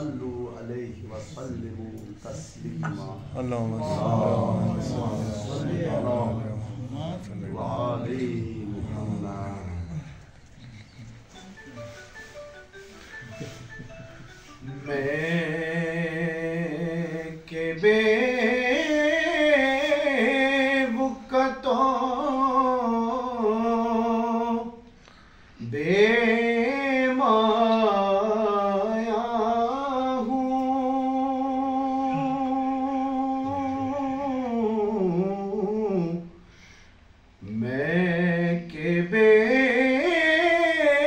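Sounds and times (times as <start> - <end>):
man singing unaccompanied: 14.5 - 24.9, 25.6 - 36.4, 37.4 - 41.0.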